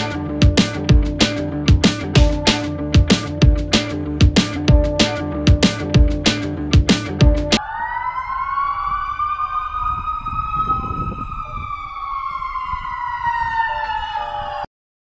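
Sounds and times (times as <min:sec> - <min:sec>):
emergency vehicle siren: 0:07.6 - 0:14.7.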